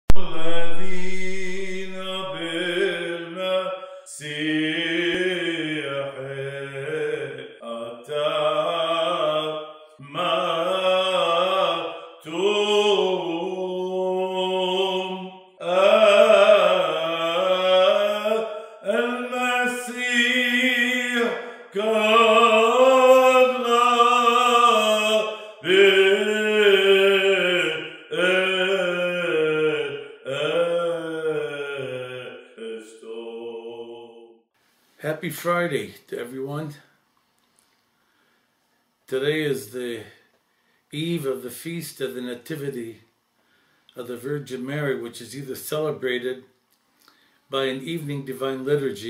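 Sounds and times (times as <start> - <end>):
person chanting a hymn: 0.1 - 34.4, 41.0 - 43.0.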